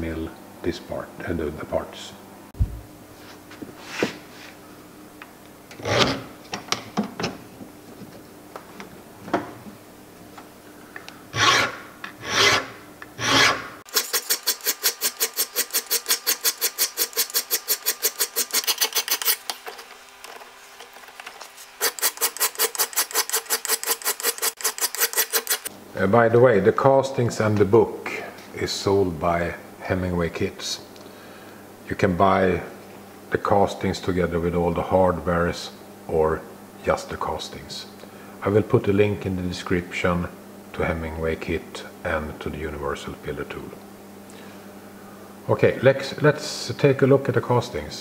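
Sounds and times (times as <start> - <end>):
hand file rasping on cast iron: 11.4 - 19.4.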